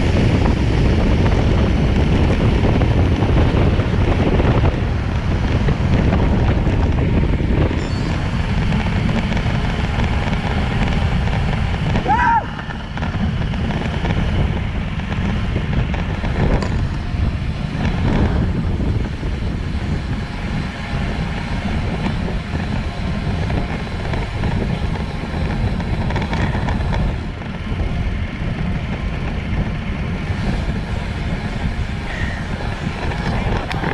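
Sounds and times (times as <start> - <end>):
tyre and road noise: 0.0 - 33.9
wind buffeting microphone: 0.0 - 33.9.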